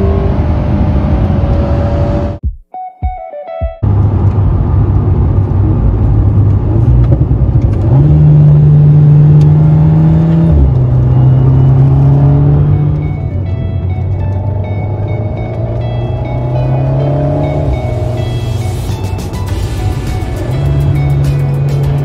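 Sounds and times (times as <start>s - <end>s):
car engine revving in cabin: 3.8s - 18.9s, 20.4s - 22.0s.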